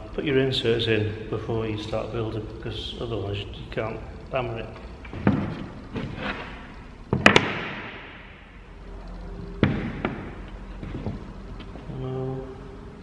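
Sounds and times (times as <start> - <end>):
wooden panels knocking: 5.1 - 8.2, 9.6 - 11.8.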